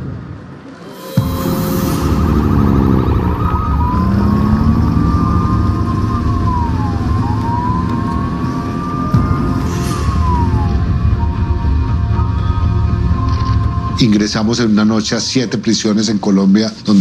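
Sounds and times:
low rumble of vehicles: 0.0s - 15.6s
police siren yelp and wail: 1.5s - 14.0s.

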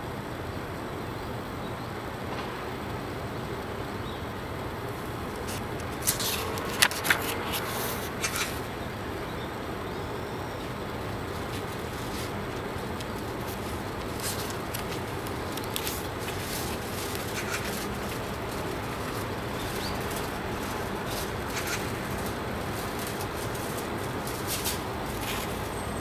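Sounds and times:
notebook page turning: 5.4s - 8.6s, 11.3s - 26.0s.

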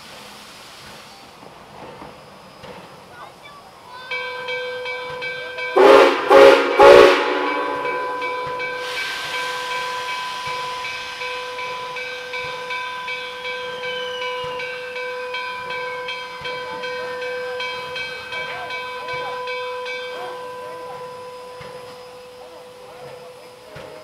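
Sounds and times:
locomotive steam hiss: 0.0s - 24.0s
grade crossing bell ringing: 3.9s - 23.6s
steam whistle blasts: 5.7s - 15.7s.

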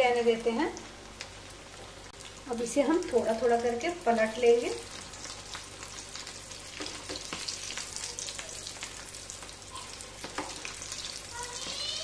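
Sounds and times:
deep-frying sizzle in oil: 0.0s - 12.0s.

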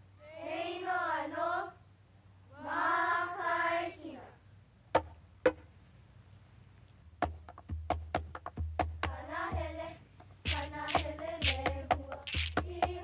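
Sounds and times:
children chanting: 0.2s - 1.8s, 2.5s - 4.3s, 9.1s - 13.0s.

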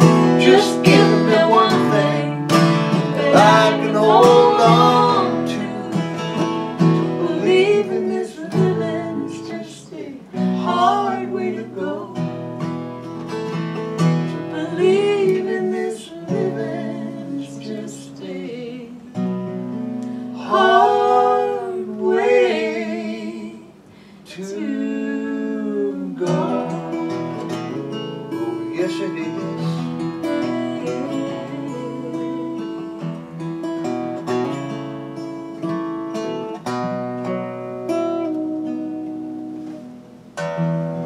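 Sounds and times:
person singing: 0.0s - 6.4s, 7.2s - 12.3s, 14.4s - 19.1s, 20.4s - 33.2s
acoustic guitars strummed: 0.0s - 41.0s.

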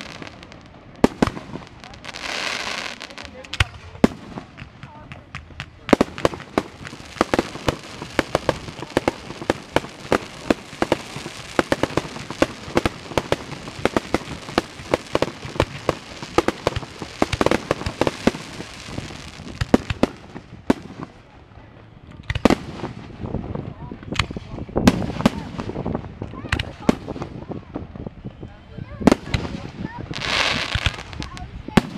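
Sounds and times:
fireworks hiss: 0.0s - 21.1s, 29.1s - 31.9s
fireworks bursting: 0.0s - 31.9s.

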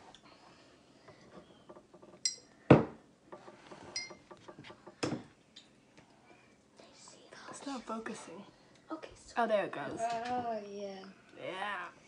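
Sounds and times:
dishes clinking: 3.9s - 5.2s.

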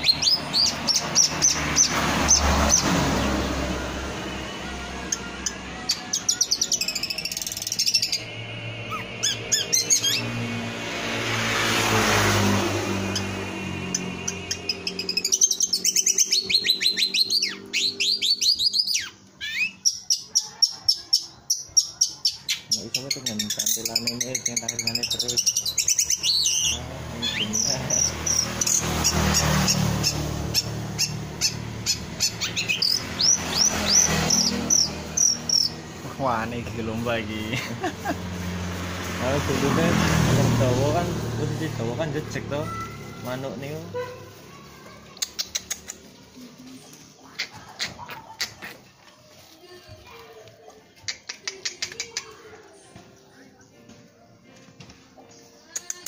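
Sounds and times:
bird singing high chirps: 0.0s - 4.4s, 5.0s - 10.6s, 13.0s - 37.0s.

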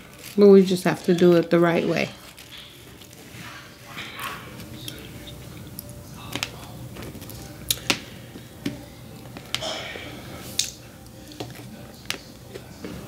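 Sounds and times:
person chewing with mouth clicks: 7.6s - 7.9s, 10.5s - 11.6s.

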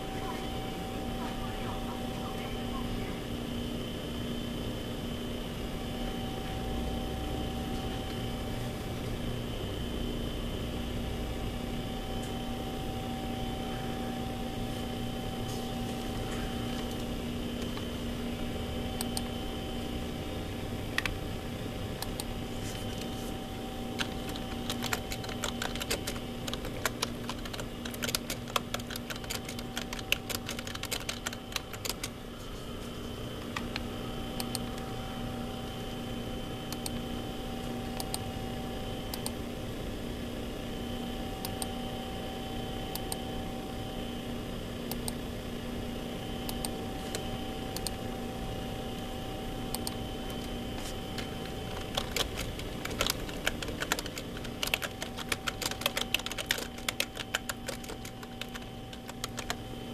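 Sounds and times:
electrical hum: 0.0s - 59.9s
sharp clicks: 51.2s - 59.6s.

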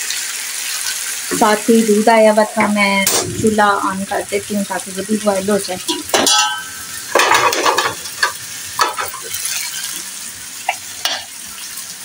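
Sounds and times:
potatoes sizzling in oil: 0.0s - 12.0s
pots and utensils clinking: 5.8s - 11.4s.

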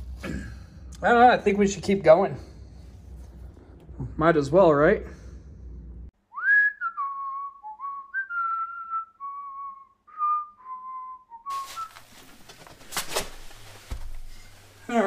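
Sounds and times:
person whistling a tune: 6.3s - 11.9s
rustling handling noise: 11.5s - 15.0s.

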